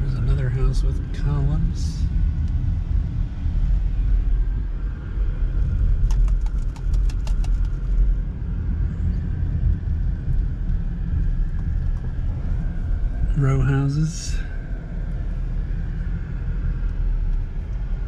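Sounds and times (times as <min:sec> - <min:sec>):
car cabin road noise: 0:00.0 - 0:18.0
quick clicks: 0:06.0 - 0:07.8.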